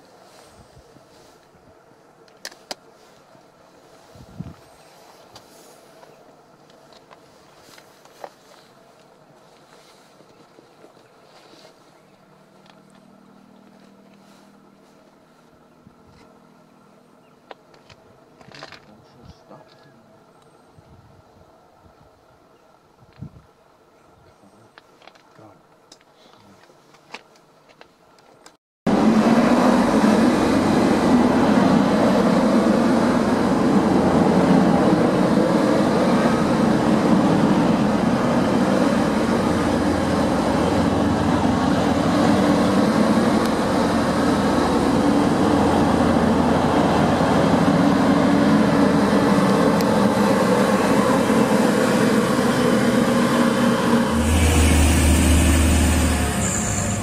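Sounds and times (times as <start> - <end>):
diesel train passing: 28.9 - 57.0.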